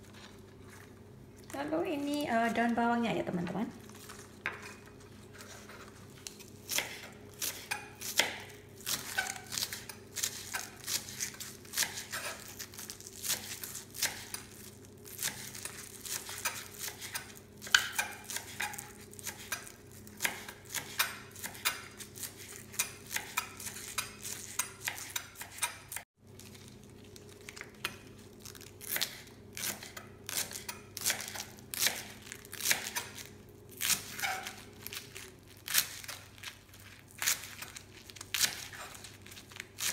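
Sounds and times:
knife chopping on wooden board: 0:06.7 - 0:12.4.

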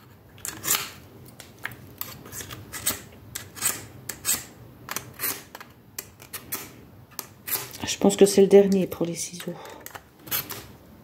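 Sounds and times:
scissors rasping through sharpener: 0:07.4 - 0:07.8.

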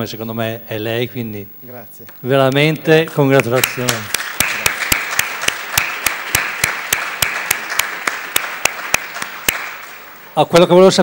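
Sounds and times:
close hand claps: 0:03.4 - 0:10.1
audience applauding: 0:03.4 - 0:10.2.

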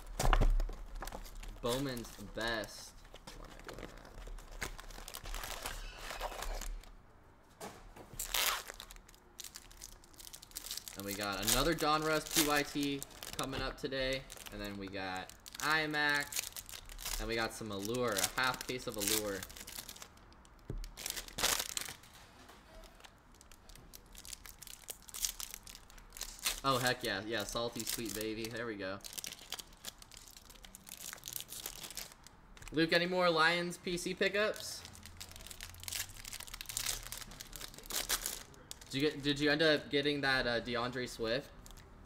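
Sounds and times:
foil wrappers crinkling: 0:00.0 - 0:06.9, 0:08.1 - 0:32.8, 0:34.8 - 0:39.1
wrapper ripped open: 0:03.4 - 0:06.9, 0:08.2 - 0:13.5, 0:14.2 - 0:20.1, 0:20.8 - 0:22.0, 0:22.8 - 0:26.9, 0:27.7 - 0:32.3, 0:34.8 - 0:38.9.

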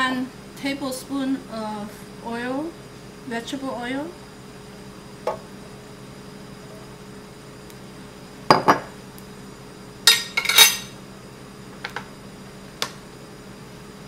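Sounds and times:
metal kitchen utensils clinking: 0:10.1 - 0:10.9.

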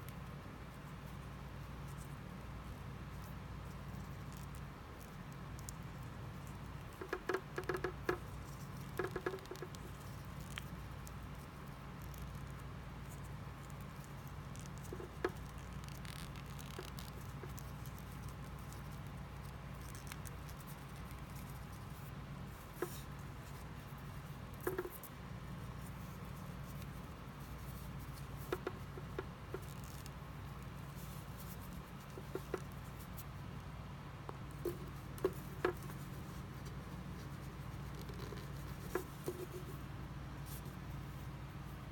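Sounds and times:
steady low hum: 0:00.0 - 0:41.9
hands handling fishing lure: 0:20.1 - 0:33.3.

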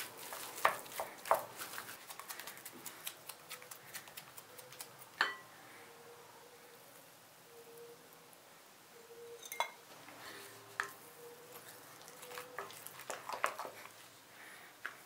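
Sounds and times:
dough squelching: 0:00.0 - 0:05.2, 0:10.8 - 0:15.0.

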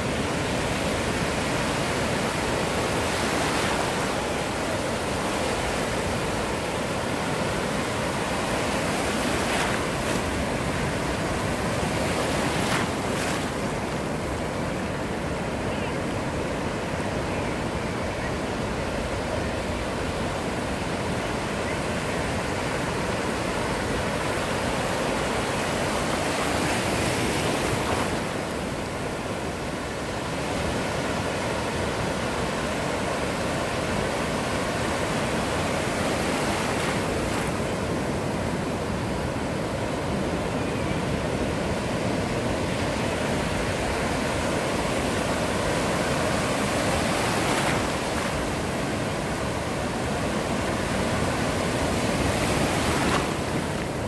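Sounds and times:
waves breaking on beach: 0:00.0 - 0:54.0.

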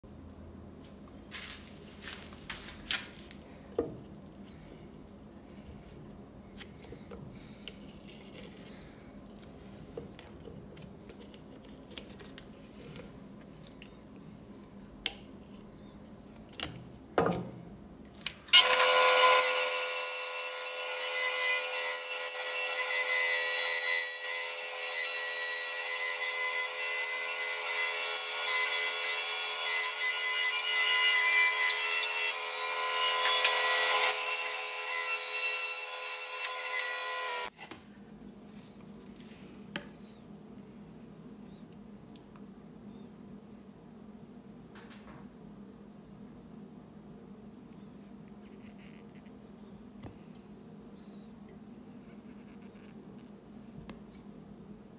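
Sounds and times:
bandsaw cutting wood: 0:18.5 - 0:37.5.

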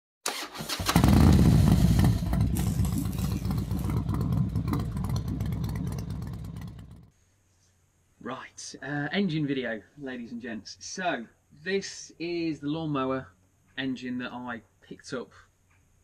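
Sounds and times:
engine starting and revving: 0:00.2 - 0:07.1.

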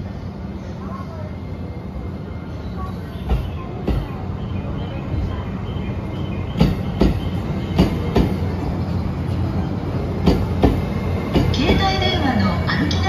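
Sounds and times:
train rumbling past: 0:00.0 - 0:13.0
train wheels clacking: 0:06.5 - 0:08.6, 0:10.1 - 0:13.0.

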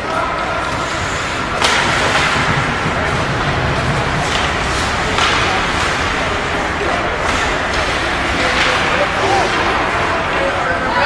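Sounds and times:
skates on ice: 0:00.0 - 0:11.0
sharp knocks: 0:01.6 - 0:09.9.

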